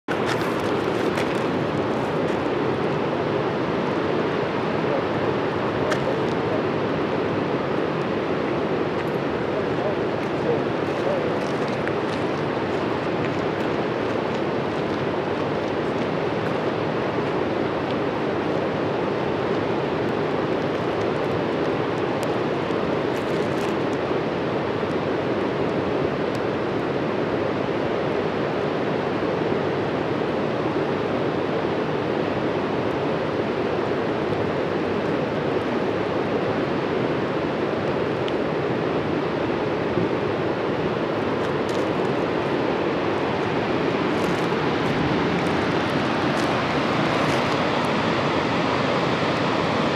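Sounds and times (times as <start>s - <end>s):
river water rushing over rocks: 0.1s - 49.9s.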